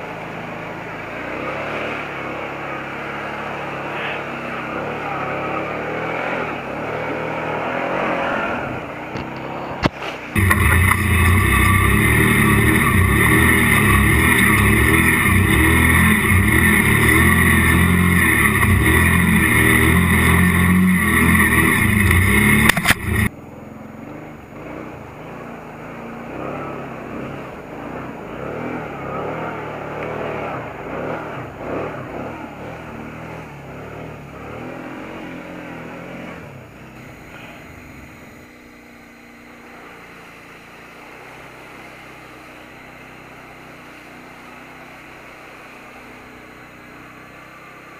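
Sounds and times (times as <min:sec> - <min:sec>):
atv engine running under load: 0:00.0 - 0:47.9
water splashing: 0:10.3 - 0:23.3.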